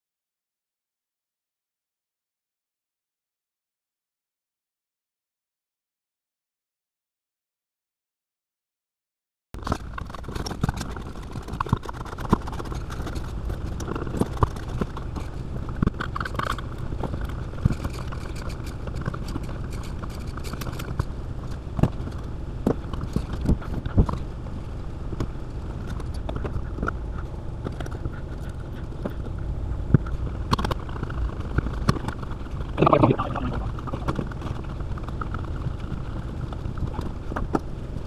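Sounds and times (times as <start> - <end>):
low background hum: 9.6 - 38.0.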